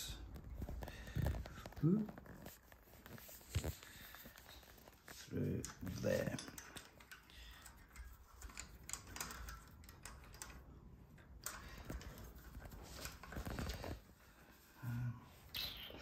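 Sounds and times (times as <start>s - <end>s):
bicycle skewer clicking and rattling: 4.4s - 13.7s.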